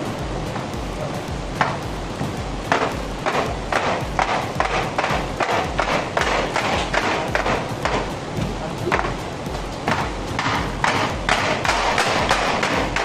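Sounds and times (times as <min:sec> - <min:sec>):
music with low beat: 0:00.0 - 0:13.0
sharp rhythmic taps: 0:00.0 - 0:13.0.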